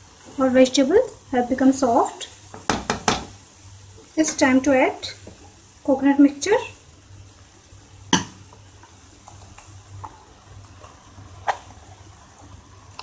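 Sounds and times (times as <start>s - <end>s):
metal utensil knocking on pan: 2.6s - 3.3s.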